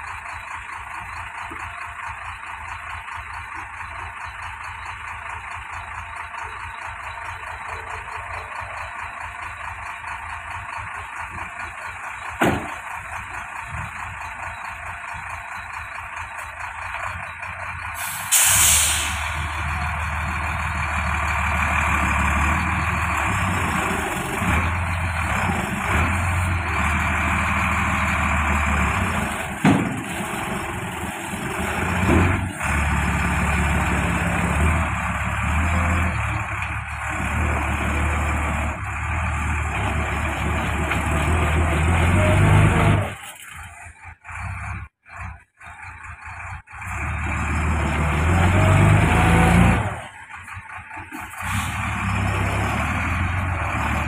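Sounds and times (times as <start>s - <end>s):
diesel truck engine: 0.0s - 54.0s
truck door shutting: 12.4s - 12.8s
air hiss burst: 18.0s - 19.4s.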